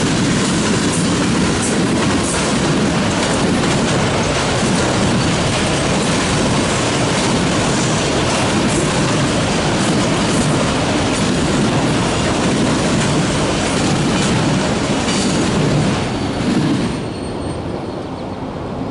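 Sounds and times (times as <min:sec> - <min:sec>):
wheels clacking over rail joints: 0:00.0 - 0:17.2
train wheels rumbling on rail: 0:00.0 - 0:18.9.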